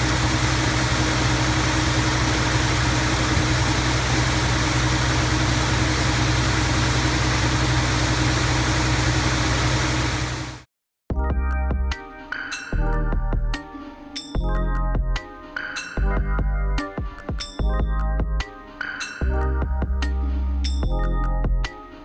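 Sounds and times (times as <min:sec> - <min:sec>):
high-pressure water spray hiss: 0:00.0 - 0:10.6
truck engine drone: 0:00.0 - 0:10.7
electronic music with chiming notes: 0:11.1 - 0:22.0.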